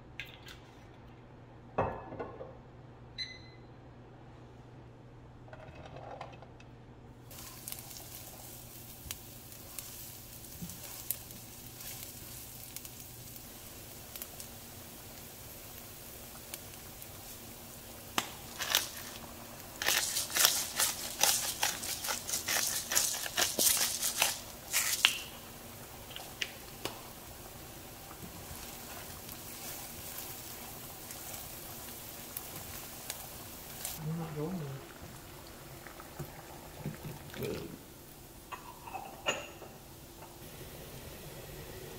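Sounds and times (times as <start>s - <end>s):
crackles: 7.3s - 34.2s
food sizzling in oil: 7.3s - 34.2s.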